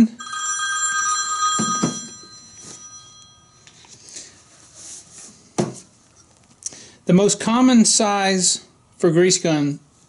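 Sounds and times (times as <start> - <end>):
bell-like ringing tone: 0.0 - 3.8.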